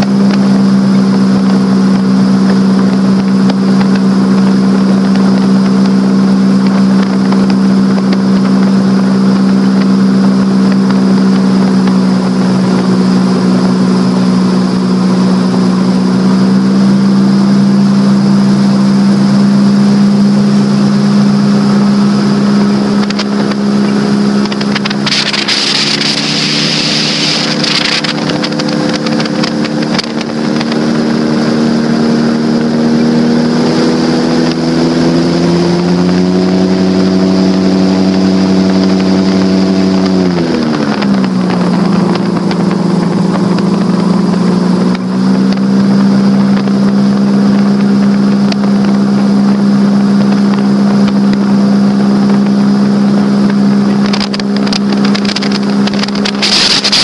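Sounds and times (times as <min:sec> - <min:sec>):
airboat engine droning: 0:00.0 - 0:57.0
rushing hiss: 0:25.0 - 0:29.9.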